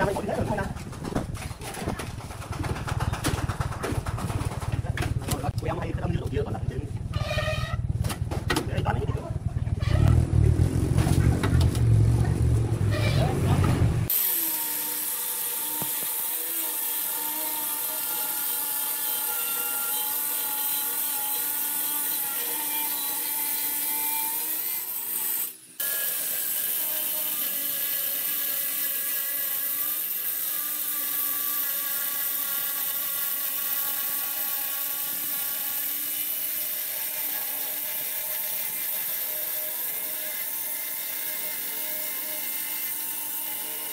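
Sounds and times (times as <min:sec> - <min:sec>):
low rumbling: 0:04.4 - 0:14.1
stone cutter motor whine: 0:14.0 - 0:43.9.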